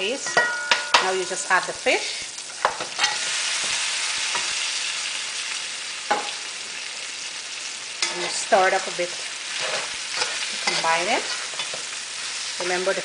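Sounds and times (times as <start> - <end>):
fish sizzling in a pot: 0.0 - 13.0
metal spoon knocking a pot: 0.3 - 1.2.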